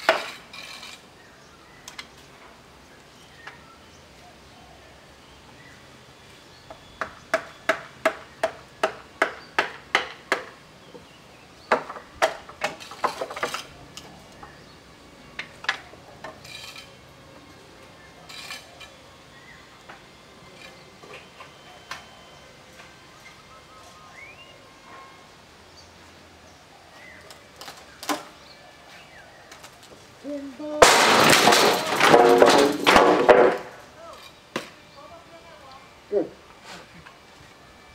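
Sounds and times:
hammer striking chisel on wood: 7.0 - 10.6.

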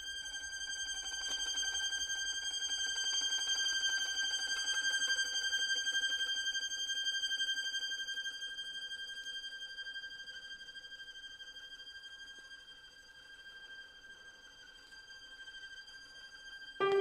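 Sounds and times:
violin high sustained note: 16.8 - 17.0.

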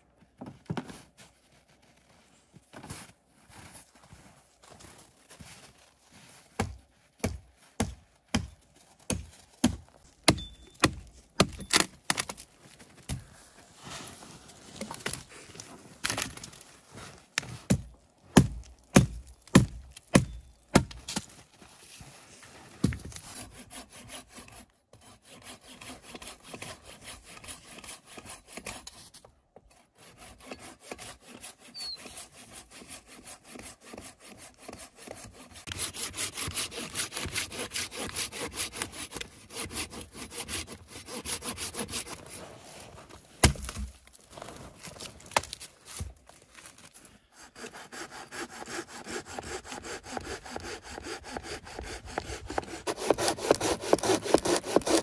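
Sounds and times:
hand saw cutting wood: 22.8 - 44.0, 47.2 - 55.0.

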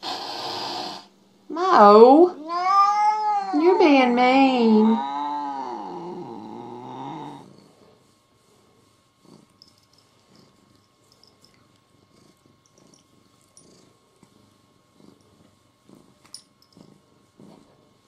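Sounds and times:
cat purring softly: 4.8 - 18.0.

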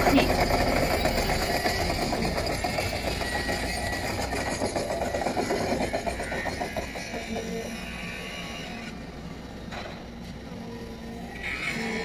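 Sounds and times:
concrete vibrator rattling: 0.0 - 7.6.

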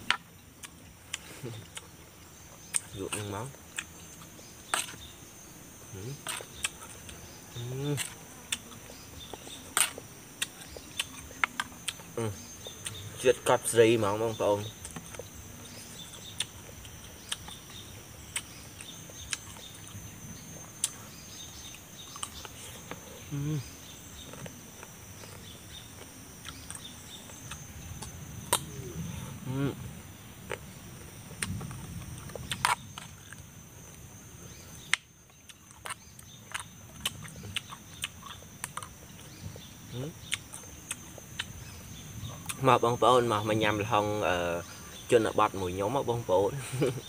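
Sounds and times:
chewing crunchy fruit: 0.0 - 46.0
high insect drone: 0.0 - 47.0
crisp chewing crunches: 6.1 - 13.0, 16.0 - 21.0, 31.4 - 34.0, 34.8 - 39.4.

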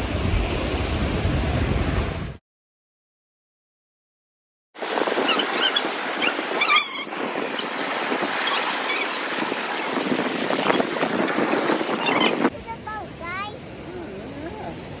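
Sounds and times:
rushing surf: 0.0 - 2.4, 4.8 - 15.0
high squeaky chirp: 5.3 - 7.7, 8.4 - 9.2, 12.0 - 12.4.

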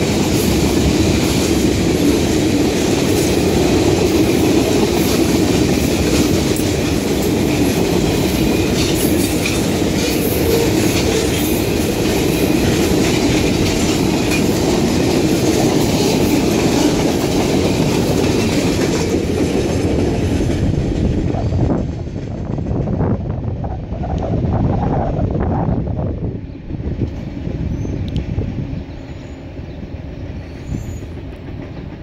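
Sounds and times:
wheels clacking over rail joints: 0.0 - 22.7
train wheels rumbling on rail: 0.0 - 32.0.

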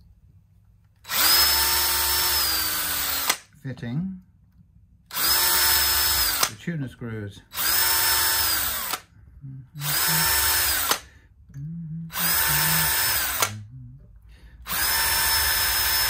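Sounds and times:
cordless drill whining: 1.0 - 3.4, 5.1 - 6.6, 7.5 - 9.1, 9.8 - 11.1, 12.1 - 13.6, 14.6 - 16.0.

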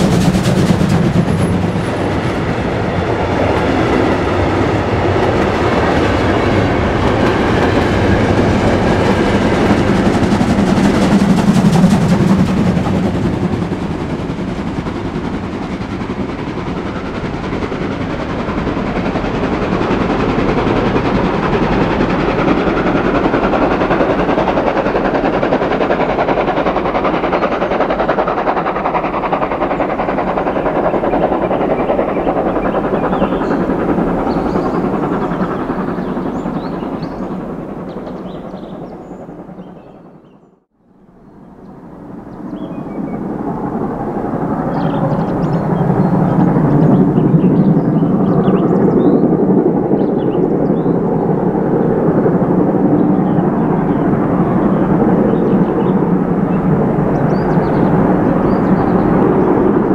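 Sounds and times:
steam locomotive exhaust beats: 0.0 - 39.8
train wheels clattering: 0.0 - 40.0.

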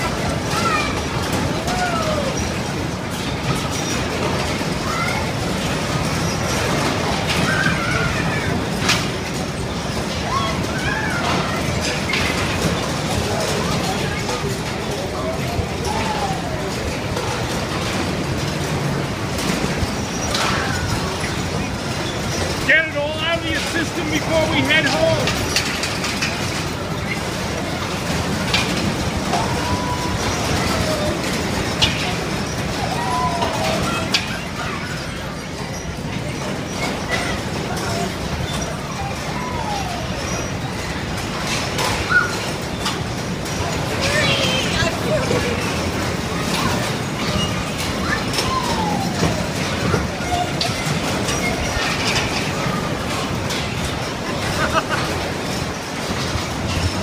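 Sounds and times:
bumper cars rumbling on floor: 0.0 - 57.0.

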